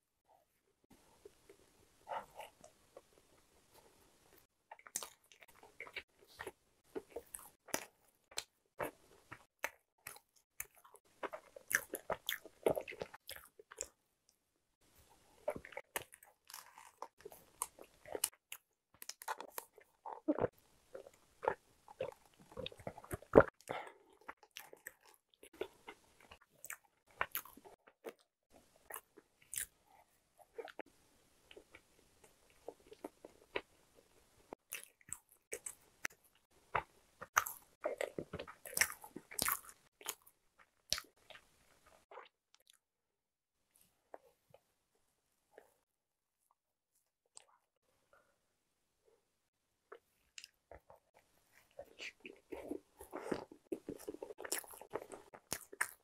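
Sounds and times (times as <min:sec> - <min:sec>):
wet chewing: 0:34.5 - 0:40.3, 0:49.9 - 0:56.0.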